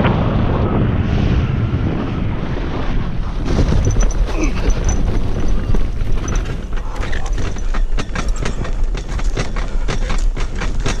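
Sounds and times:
low rumble: 0:00.0 - 0:11.0
frame rattling clicks and knocks: 0:03.7 - 0:11.0.

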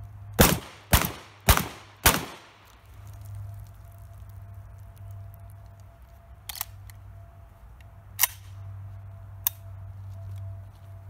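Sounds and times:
shotgun action clicking: 0:08.2 - 0:08.5.

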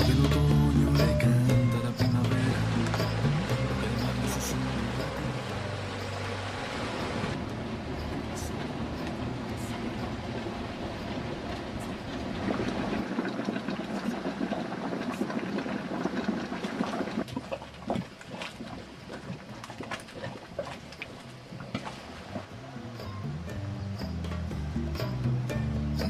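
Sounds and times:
boiling mud bubbling: 0:02.3 - 0:22.8.

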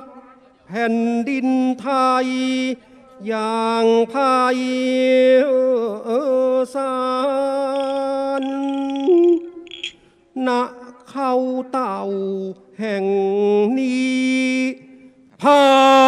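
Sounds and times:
person chanting in held notes: 0:00.0 - 0:09.7, 0:15.4 - 0:16.0.

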